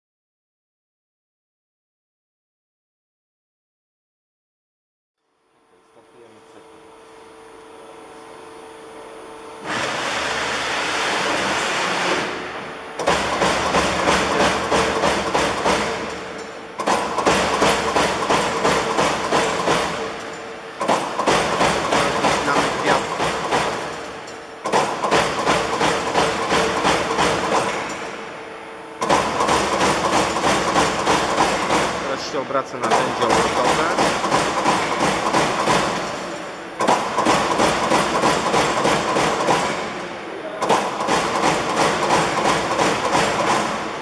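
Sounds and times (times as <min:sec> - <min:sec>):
punch press hum: 0:09.0 - 0:44.0.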